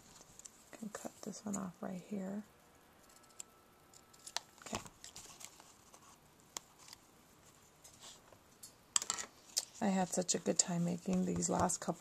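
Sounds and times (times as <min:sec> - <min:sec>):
paper rustling: 0:04.2 - 0:08.2.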